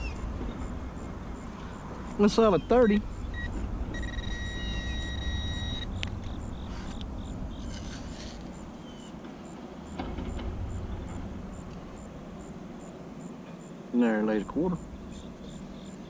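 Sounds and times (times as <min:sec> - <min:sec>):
metal detector tone: 0:03.3 - 0:07.0
hand digger scraping soil: 0:07.6 - 0:08.6
low rumble: 0:09.8 - 0:12.8, 0:14.8 - 0:16.0.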